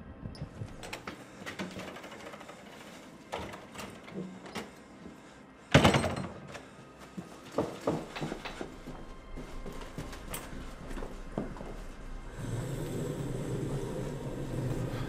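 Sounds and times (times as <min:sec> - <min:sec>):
knocks and shuffling: 0:06.4 - 0:12.3.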